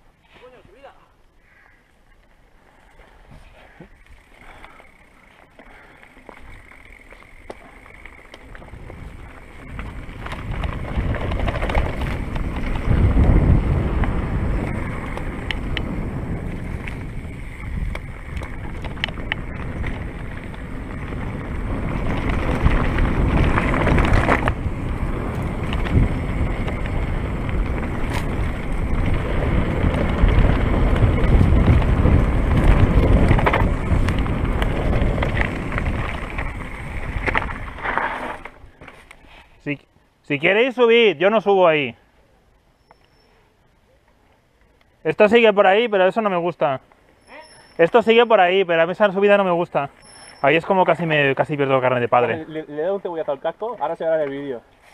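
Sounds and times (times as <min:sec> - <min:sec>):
bike tyres rolling: 0:01.4 - 0:39.5, 0:44.5 - 0:54.9
bike clicks and rattles: 0:02.1 - 0:39.5
wind on microphone: 0:08.6 - 0:38.8.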